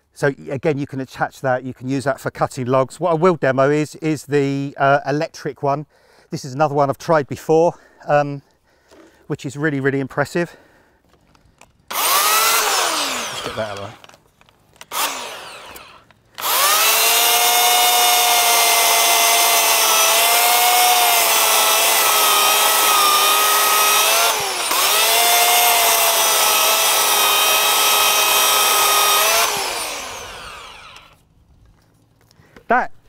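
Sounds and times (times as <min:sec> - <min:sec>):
chainsaw winding down: 0:11.9 - 0:14.1, 0:14.8 - 0:31.2
electric chainsaw cutting log: 0:11.9 - 0:14.2, 0:14.8 - 0:31.3.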